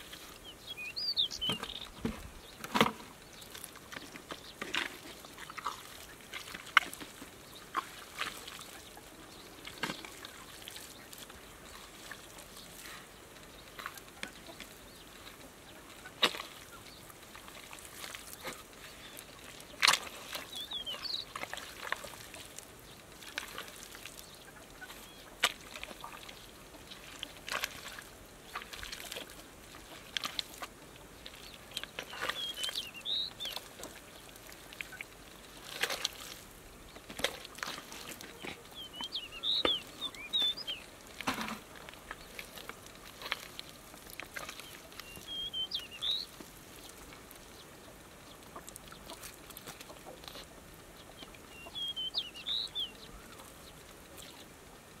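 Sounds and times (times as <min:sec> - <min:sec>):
bird chirping: 0:00.3 - 0:04.7, 0:18.3 - 0:21.4, 0:31.4 - 0:33.8, 0:38.2 - 0:40.9, 0:44.6 - 0:48.4, 0:51.0 - 0:54.4
hands squelching in wet mud: 0:02.9 - 0:47.6, 0:48.4 - 0:54.2.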